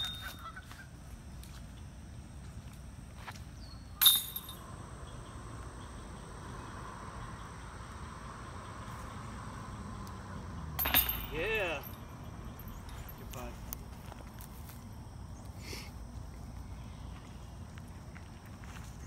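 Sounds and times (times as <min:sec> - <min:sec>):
sharp metallic clink: 0:00.0 - 0:00.4, 0:04.0 - 0:04.7, 0:10.8 - 0:13.7
faint outdoor background: 0:00.0 - 0:19.0.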